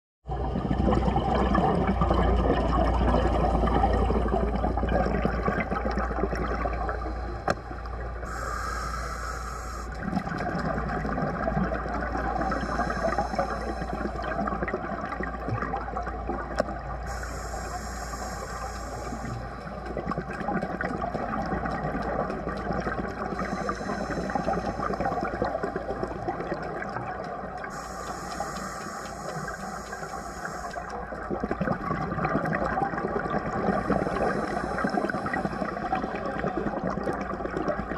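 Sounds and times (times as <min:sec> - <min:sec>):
underwater rumble and wash: 0:00.2 - 0:37.9
bubbles: 0:00.3 - 0:08.3, 0:09.9 - 0:17.2, 0:19.0 - 0:37.9
scuba regulator breathing hiss: 0:08.3 - 0:10.0, 0:12.4 - 0:14.3, 0:17.1 - 0:19.8, 0:23.3 - 0:25.3, 0:27.7 - 0:31.0, 0:33.6 - 0:36.2.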